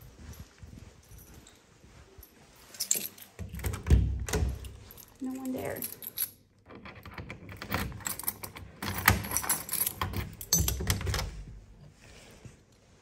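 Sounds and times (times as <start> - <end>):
keys jangling: 0.0 - 11.6
key rattling in door lock: 2.7 - 11.6.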